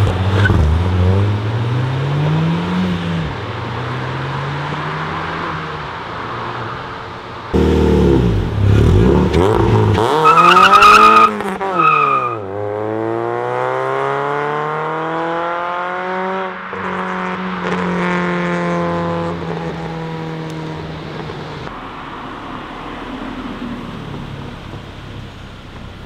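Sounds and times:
car engine revving: 0:00.0 - 0:26.0
tyre squeal: 0:10.1 - 0:12.4.

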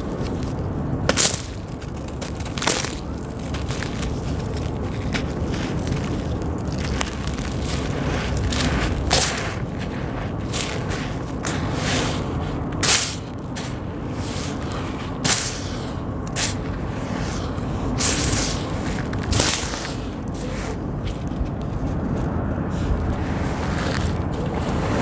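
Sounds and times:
hands crumbling gritty sand: 0:00.0 - 0:22.1
low rumble: 0:00.0 - 0:25.0.

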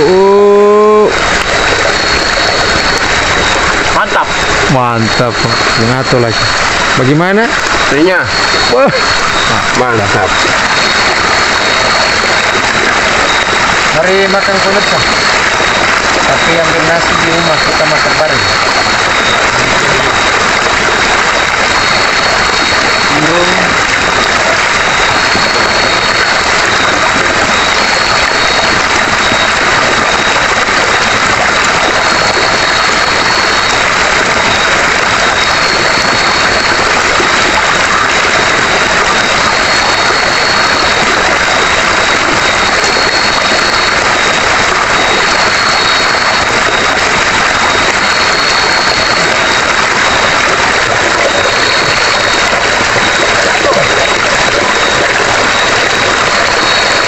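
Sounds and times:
high repeating note: 0:00.0 - 0:57.0
high unbroken whine: 0:00.0 - 0:57.0.

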